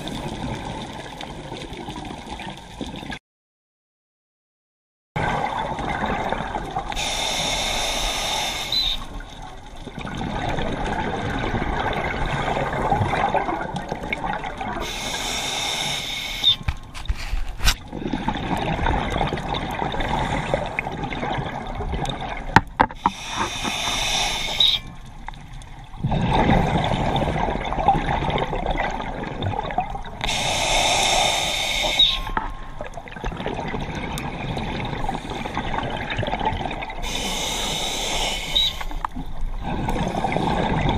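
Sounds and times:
exhaled bubbles rushing: 5.2s - 7.0s, 8.7s - 15.0s, 17.8s - 22.6s, 25.8s - 30.3s, 32.0s - 37.1s, 38.6s - 40.9s
regulator breathing hiss: 6.9s - 9.1s, 14.8s - 16.7s, 23.1s - 24.8s, 30.2s - 32.3s, 37.0s - 39.0s.

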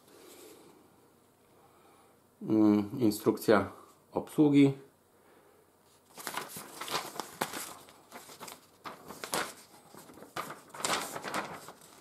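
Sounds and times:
paper crinkling and rustling: 5.9s - 12.0s.

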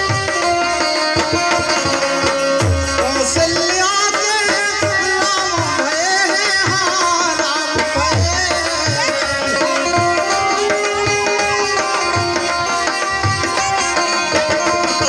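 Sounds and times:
dholak drum beating: 0.0s - 15.0s
harmonium: 0.0s - 15.0s.

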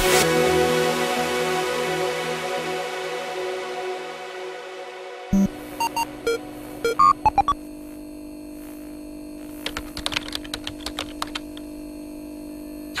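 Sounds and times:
steady electronic hum: 2.5s - 13.0s
short beeps: 5.3s - 7.6s
quick irregular clicks: 9.6s - 11.7s.

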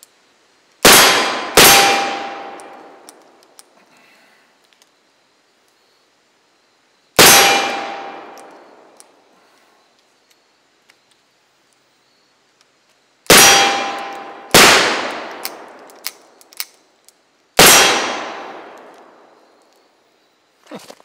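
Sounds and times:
revolver shots echoing: 0.9s - 2.8s, 7.2s - 8.6s, 13.3s - 15.8s, 17.6s - 19.1s.

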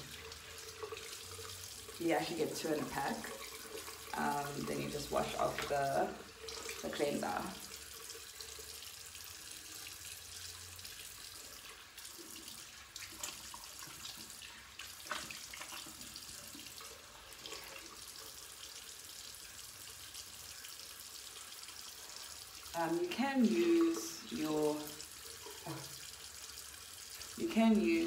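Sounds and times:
water splashing: 0.0s - 8.3s.

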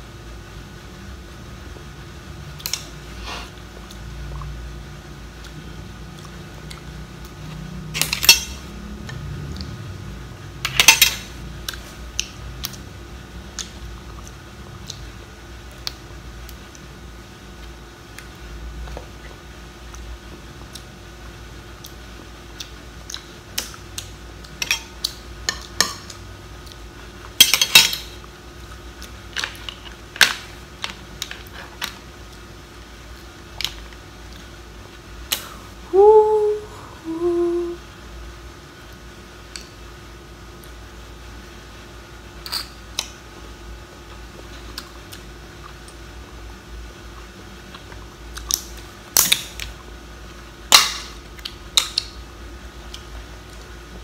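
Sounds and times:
person humming: 35.8s - 37.9s.

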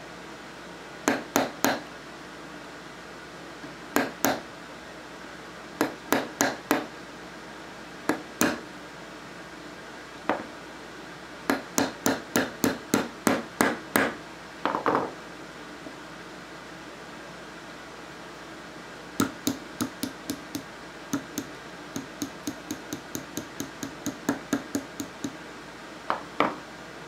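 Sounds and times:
hammer tapping metal punch: 1.1s - 1.8s, 4.0s - 4.4s, 5.8s - 6.9s, 8.1s - 8.6s, 11.5s - 14.9s, 19.2s - 25.4s.

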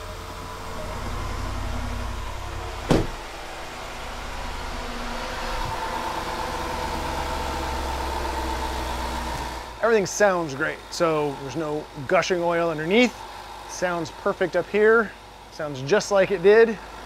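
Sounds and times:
car engine idling: 0.0s - 17.0s
high steady engine whine: 0.0s - 17.0s
car door shutting: 2.8s - 3.5s.

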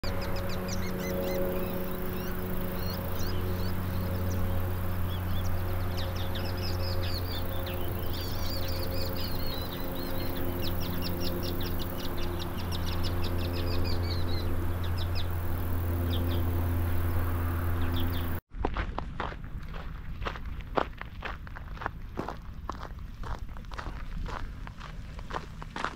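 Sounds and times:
birds chirping and trilling: 0.0s - 18.4s
steady low hum: 0.0s - 18.4s.

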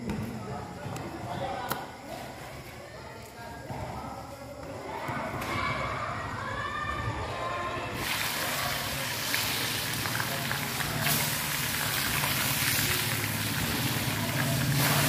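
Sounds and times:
fire crackles: 8.0s - 15.0s
oil sizzling in a wok: 8.0s - 15.0s.

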